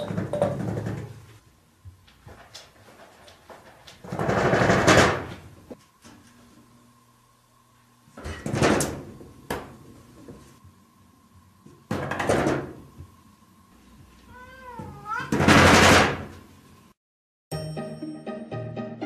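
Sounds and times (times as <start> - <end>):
sliding door rattling and knocking: 0.0 - 1.2, 4.0 - 5.4, 15.3 - 16.3
cat meowing: 14.3 - 15.4.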